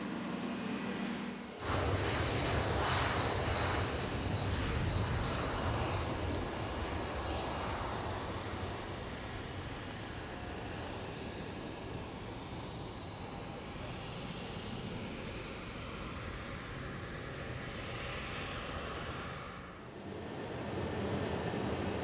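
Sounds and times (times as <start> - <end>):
steady hum: 0.0 - 2.2, 19.8 - 22.0
jet engines at takeoff power: 0.0 - 22.0.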